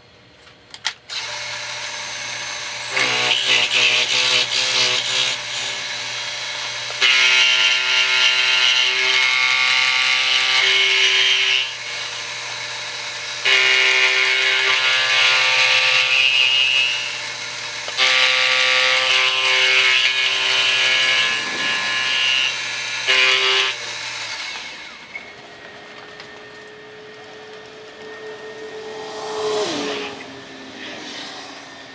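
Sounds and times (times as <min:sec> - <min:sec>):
high-pitched metal cutting: 0:01.1 - 0:25.7, 0:26.4 - 0:31.9
milling machine motor hum: 0:16.6 - 0:31.9.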